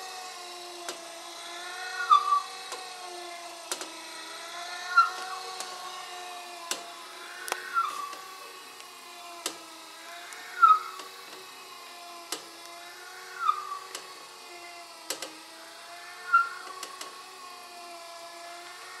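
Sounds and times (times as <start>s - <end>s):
milling machine motor whine: 0.0s - 19.0s
short squeal: 1.9s - 2.5s, 10.6s - 11.0s, 13.4s - 13.9s, 16.2s - 16.7s
sharp click: 15.1s - 15.4s.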